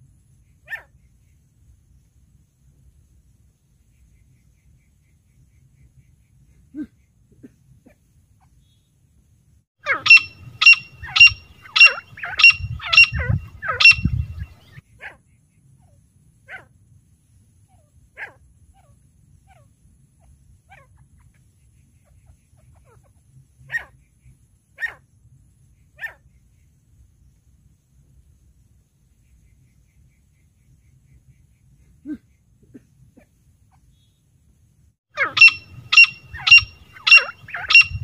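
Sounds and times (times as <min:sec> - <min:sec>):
francolin calling shrill notes: 0:09.9 - 0:14.6, 0:35.2 - 0:38.0.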